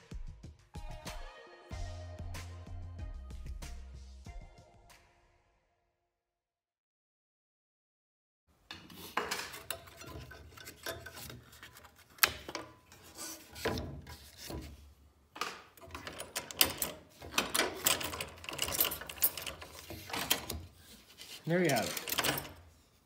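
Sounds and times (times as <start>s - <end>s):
plywood scraping on saw table: 8.7s - 14.9s.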